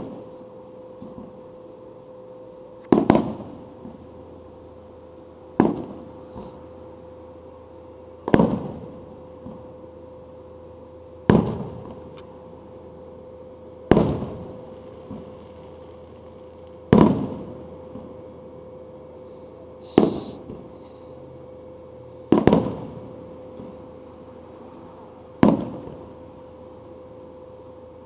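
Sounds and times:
fireworks booms with rolling echo: 0:02.9 - 0:04.0, 0:05.6 - 0:06.1, 0:08.2 - 0:09.6, 0:11.2 - 0:12.0, 0:13.9 - 0:15.4, 0:16.9 - 0:18.2, 0:22.3 - 0:23.8, 0:25.4 - 0:26.0.

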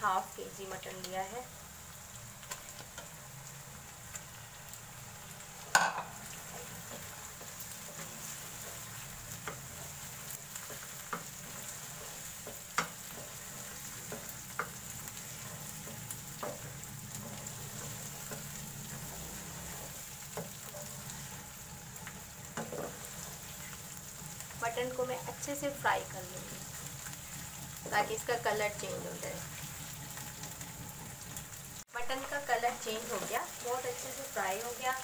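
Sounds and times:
meat sizzling in hot oil: 0:00.0 - 0:35.0
wooden spatula knocking pan: 0:05.7 - 0:06.2.

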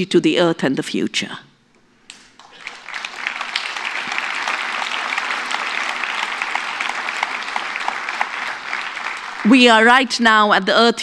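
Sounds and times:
audience applauding: 0:02.1 - 0:10.0.

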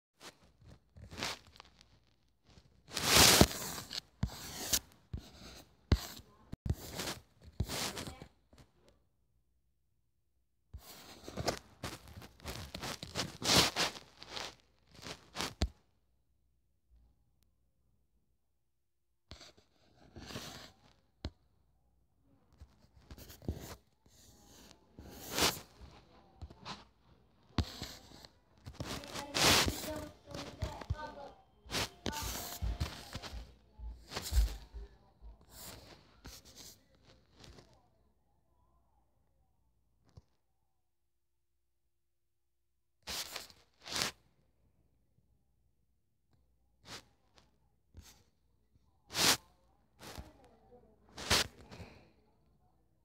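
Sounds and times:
rustling and shuffling: 0:00.2 - 0:08.3, 0:10.8 - 0:15.7, 0:24.4 - 0:37.7.

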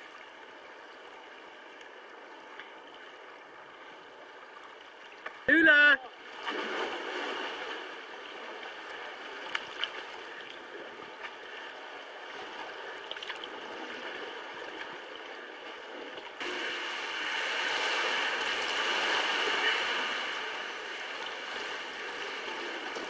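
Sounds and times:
water lapping around kayaks: 0:00.0 - 0:23.0.

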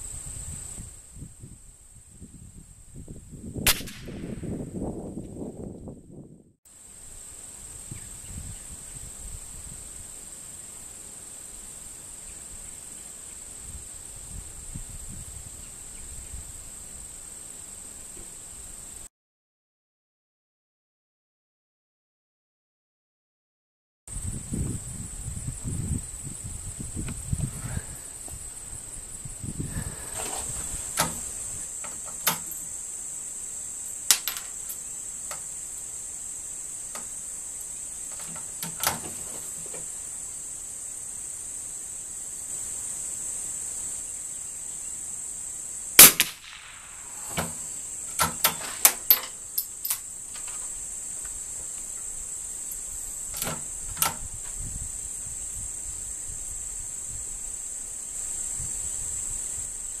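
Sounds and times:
rifle shot: 0:03.7 - 0:04.7, 0:46.0 - 0:47.5
metallic rifle bolt clicks: 0:32.1 - 0:32.6, 0:34.1 - 0:34.8, 0:46.0 - 0:50.6.

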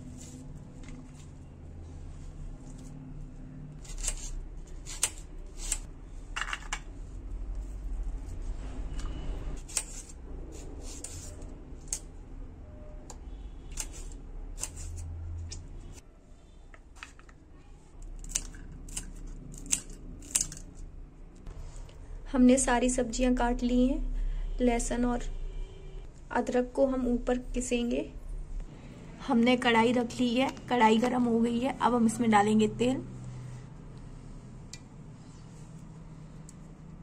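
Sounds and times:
scissors snipping chilli: 0:03.8 - 0:05.9, 0:09.6 - 0:10.2, 0:14.6 - 0:15.0, 0:18.0 - 0:20.7.

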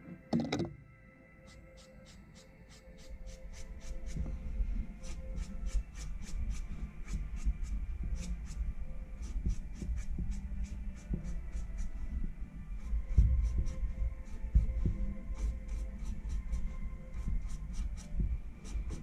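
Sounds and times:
brush pen scratching paper: 0:01.4 - 0:04.3, 0:04.9 - 0:12.1, 0:12.7 - 0:19.0.

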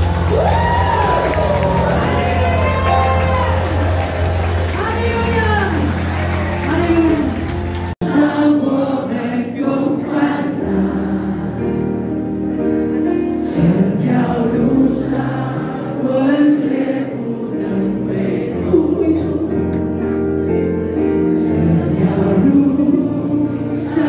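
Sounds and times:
congregation singing: 0:05.9 - 0:24.0.

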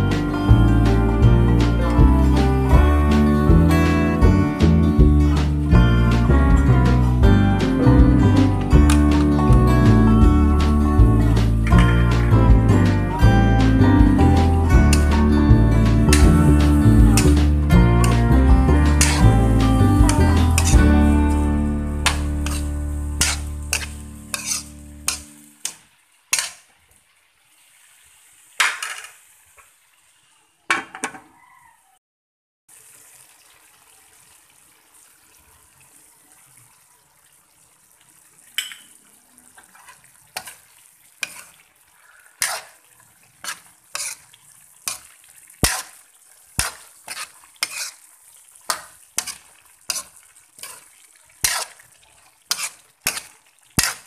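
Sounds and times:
sauce sizzling: 0:00.0 - 0:30.5, 0:32.7 - 0:54.0
metal ladle scraping a wok: 0:17.2 - 0:20.9, 0:21.9 - 0:26.6, 0:39.7 - 0:40.6, 0:41.2 - 0:41.6, 0:42.4 - 0:46.0, 0:46.6 - 0:48.1, 0:48.7 - 0:51.9, 0:52.5 - 0:54.0.

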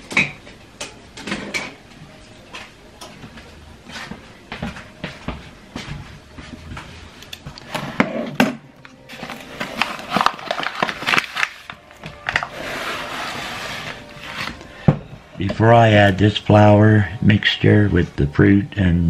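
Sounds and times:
paper bag rustling: 0:09.0 - 0:14.8.

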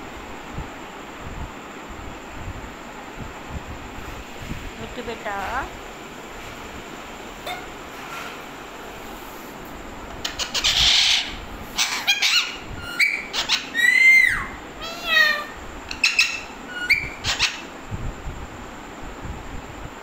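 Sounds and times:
parakeets screeching and chattering: 0:10.1 - 0:17.7.

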